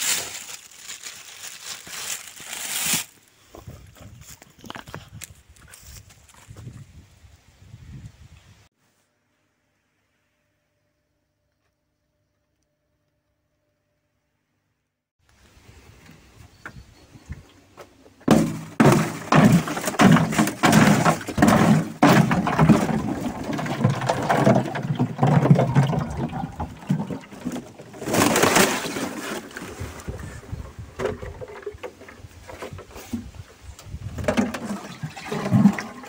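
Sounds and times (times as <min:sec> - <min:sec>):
watering can filling with water: 0:22.7 - 0:27.8, 0:34.4 - 0:36.0.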